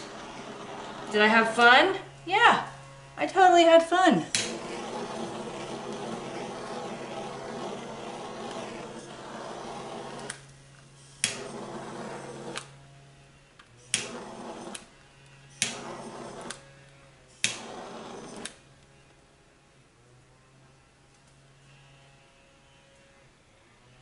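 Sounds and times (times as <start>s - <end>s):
butane torch hissing: 0.0s - 2.1s, 3.2s - 12.8s, 13.8s - 18.7s
torch igniter clicking: 4.3s - 12.7s, 13.6s - 14.9s, 15.6s - 16.6s, 17.4s - 18.6s.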